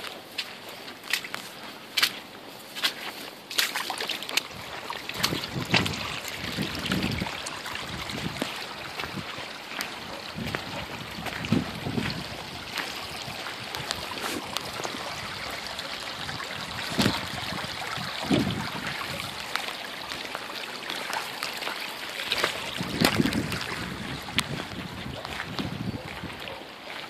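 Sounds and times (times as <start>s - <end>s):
stream flowing over stones: 0.0s - 27.0s
bumps in water: 3.6s - 21.6s, 22.2s - 25.7s.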